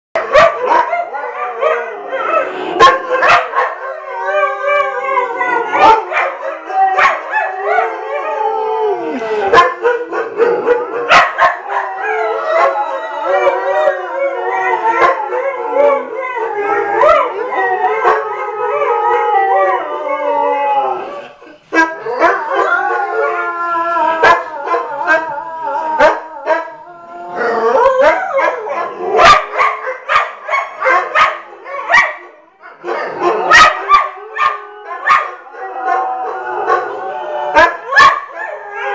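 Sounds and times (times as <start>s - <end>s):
dogs yipping: 0.2s - 1.8s, 2.8s - 3.9s, 9.5s - 12.0s
dogs howling: 0.2s - 38.9s.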